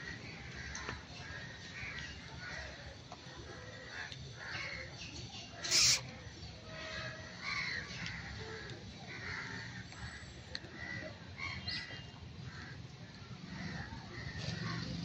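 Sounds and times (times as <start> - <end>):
short animal calls: 5.6 - 6.1.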